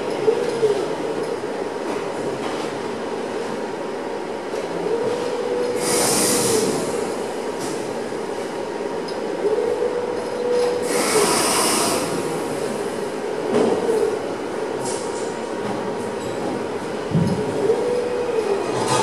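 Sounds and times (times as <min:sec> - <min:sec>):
hiss: 0:05.8 - 0:06.8, 0:10.8 - 0:12.2.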